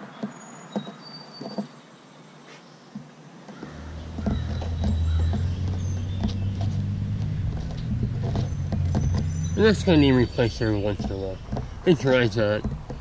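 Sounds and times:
low motor hum: 3.6 - 13.0.

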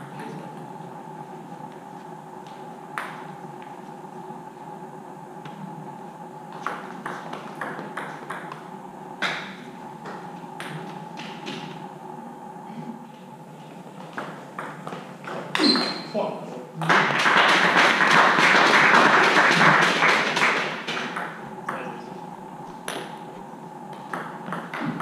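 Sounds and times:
steady hum: 0.0 - 25.0
table tennis ball hits: 6.5 - 8.6, 23.9 - 25.0.

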